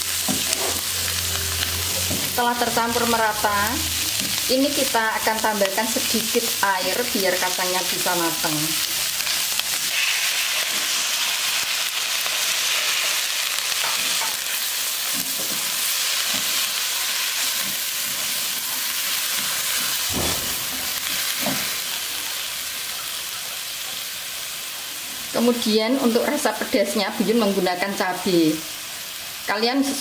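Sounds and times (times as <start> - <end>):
food sizzling in a wok: 0.0 - 30.0
spatula scraping a pan: 0.2 - 2.3, 9.2 - 11.3.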